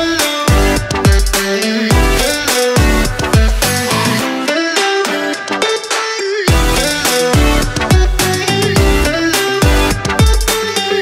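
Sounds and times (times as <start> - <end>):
deep bass drum: 0.5 - 4.1, 6.5 - 10.5.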